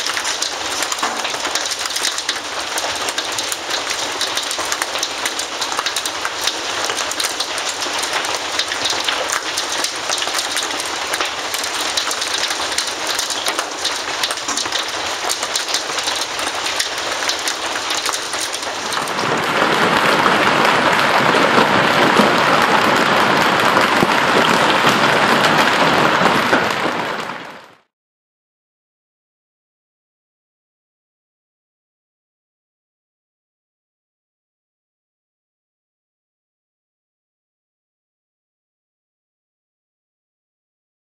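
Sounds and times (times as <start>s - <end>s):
hail falling: 0.0s - 27.9s.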